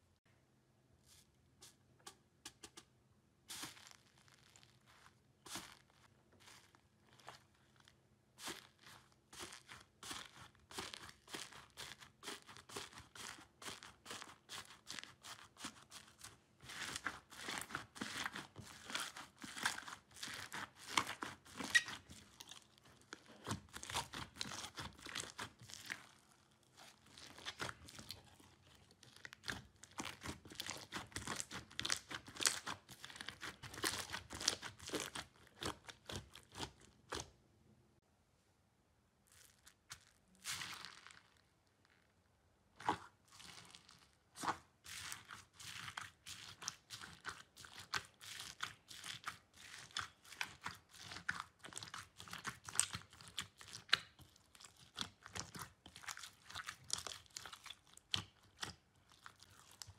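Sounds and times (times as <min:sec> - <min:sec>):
slime crackling and popping: 0:03.5 - 0:37.3, 0:39.3 - 0:42.0, 0:42.8 - 0:59.9.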